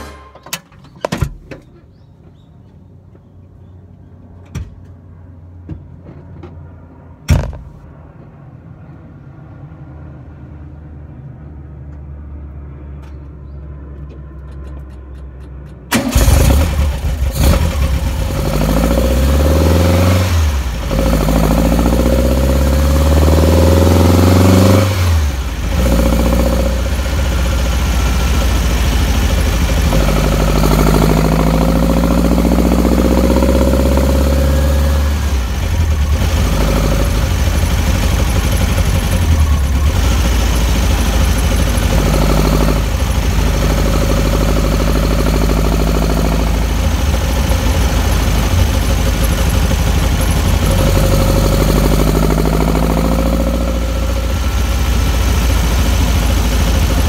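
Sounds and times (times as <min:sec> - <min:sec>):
sharp thump: 0:07.2 - 0:07.9
car engine starting and revving: 0:15.9 - 0:57.0.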